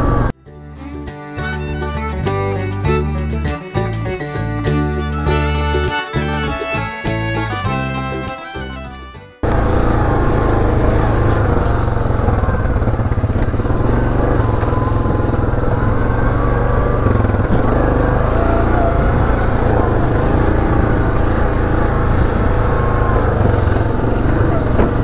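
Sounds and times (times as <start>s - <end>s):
atv engine running: 0.0s - 0.4s, 9.4s - 25.0s.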